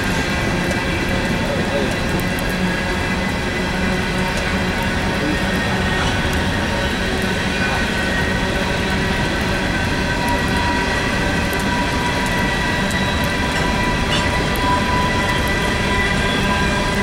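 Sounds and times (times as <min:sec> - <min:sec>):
train wheels rumbling on rail: 0:00.0 - 0:17.0.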